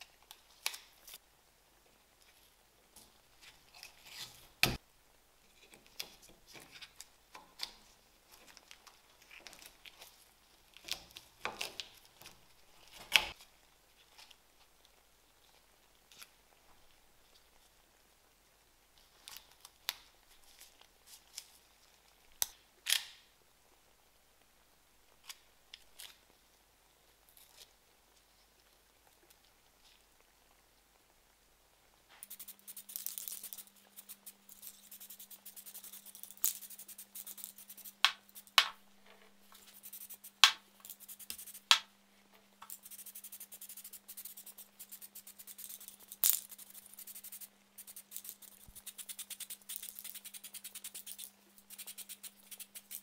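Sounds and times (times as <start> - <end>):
faint steady hum: 0.0 - 53.0
spray paint can hissing: 32.2 - 38.6, 39.8 - 41.7, 42.7 - 53.0.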